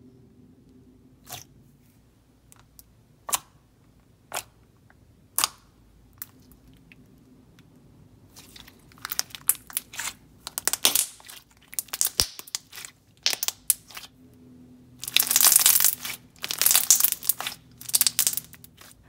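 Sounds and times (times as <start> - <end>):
slime popping and squelching: 8.3 - 14.1, 15.0 - 19.0.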